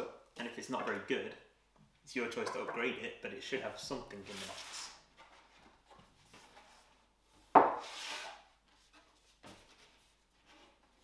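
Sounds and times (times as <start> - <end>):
cardboard board slapping on table: 7.5 - 7.9.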